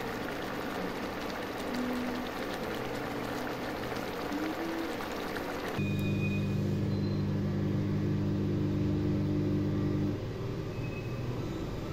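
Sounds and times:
curry bubbling in a pan: 0.0s - 5.8s
loud mechanical hum: 4.3s - 11.9s.

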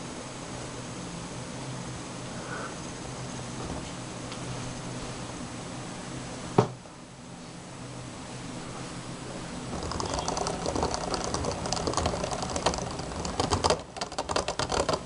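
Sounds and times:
spinning top rattling on plastic: 9.7s - 15.0s.

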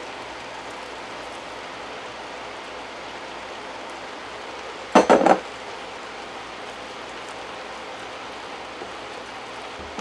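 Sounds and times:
glass bowl knocking on wood: 5.0s - 5.4s.

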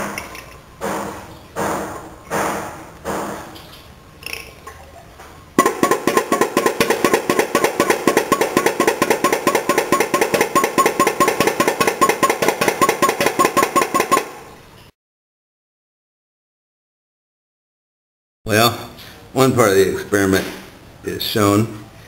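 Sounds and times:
pop-pop boat engine popping: 5.6s - 14.3s.

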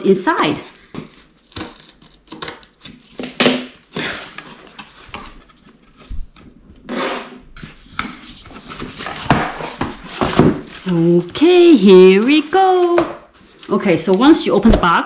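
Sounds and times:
cardboard scraping and rustling: 0.6s - 13.8s
scissors cutting packing tape: 1.0s - 3.2s.

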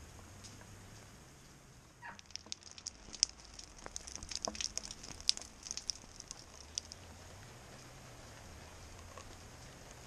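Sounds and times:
faint hiss of rain: 0.0s - 10.0s
raindrops on wet paving: 2.0s - 10.0s.

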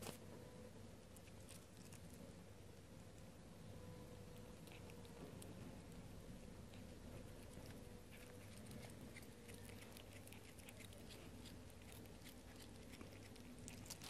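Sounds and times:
cat chewing crunching clicks: 4.4s - 14.0s.

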